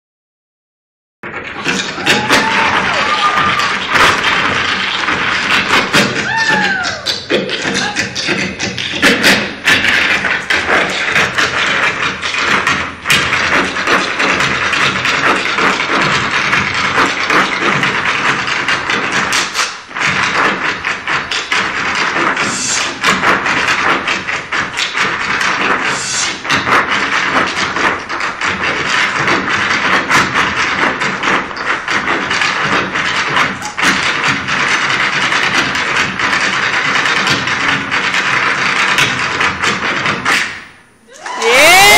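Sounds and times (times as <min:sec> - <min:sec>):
hard shoes tapping on stage: 0:01.5 - 0:41.9.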